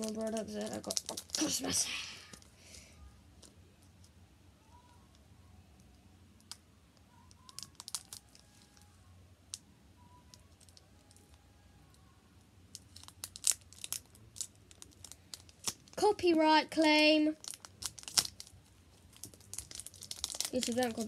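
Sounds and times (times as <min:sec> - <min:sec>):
foil wrapper crackling: 0:00.0 - 0:02.4, 0:07.3 - 0:08.9, 0:12.7 - 0:16.1, 0:17.4 - 0:21.0
scissors snipping foil wrapper: 0:17.4 - 0:18.5, 0:19.2 - 0:21.0.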